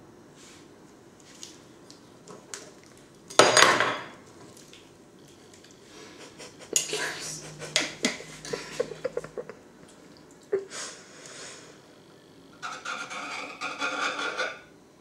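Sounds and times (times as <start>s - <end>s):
metal spoon scraping ceramic ramekin: 12.6s - 14.7s.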